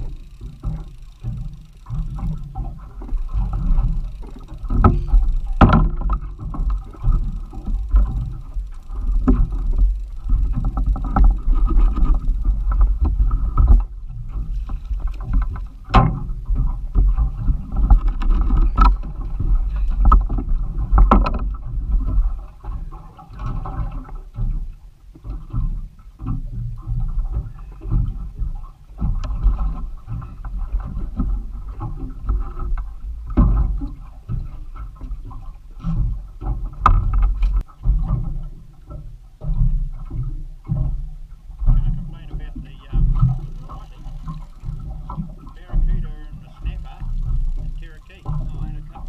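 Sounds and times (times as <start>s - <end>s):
steady low rumble: 0.0s - 22.6s, 36.1s - 49.0s
water slapping against boat hull: 0.0s - 49.0s
sharp knocks on boat: 0.5s - 8.4s, 15.2s - 24.6s, 25.2s - 49.0s.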